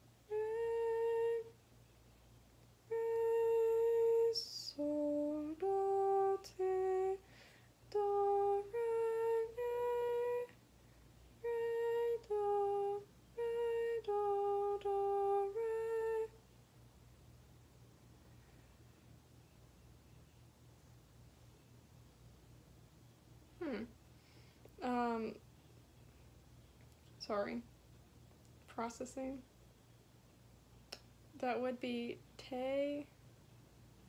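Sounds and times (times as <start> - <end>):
woman humming a slow melody: 0.0 - 1.6, 2.8 - 7.3, 7.9 - 10.6, 11.4 - 16.4, 23.6 - 24.0.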